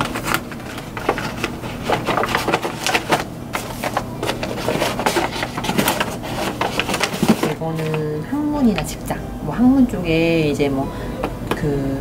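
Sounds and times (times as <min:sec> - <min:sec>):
paper packets rustling: 0:00.0 - 0:08.9.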